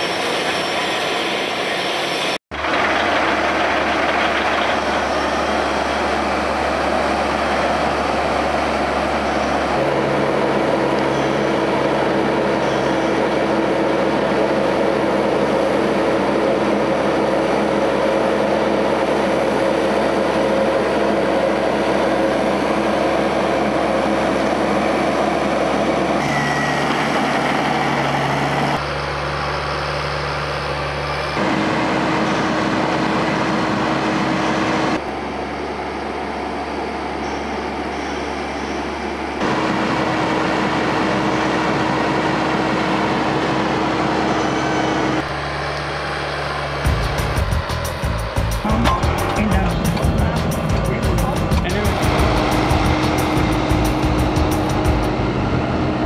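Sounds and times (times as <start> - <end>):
tractor diesel engine under load: 2.5 - 56.0.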